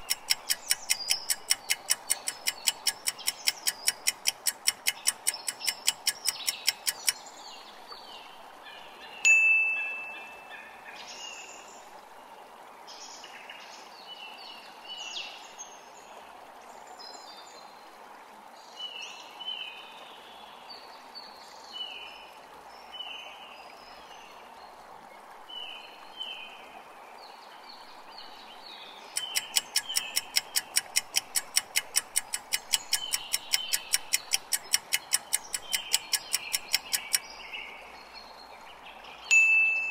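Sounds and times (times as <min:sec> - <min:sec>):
fast clock ticking: 0:00.0 - 0:07.2, 0:29.2 - 0:37.2
soft chirping chime-like notes: 0:09.2 - 0:10.7, 0:39.3 - 0:39.9
bright chime: 0:09.3 - 0:10.5, 0:39.3 - 0:39.9.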